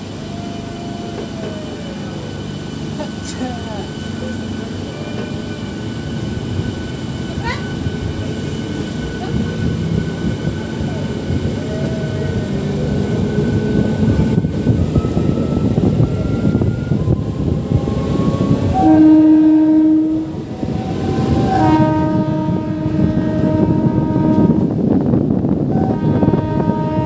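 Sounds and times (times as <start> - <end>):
train rumbling on rails: 0.0 - 27.0
train horn: 15.0 - 24.8, 25.6 - 27.0.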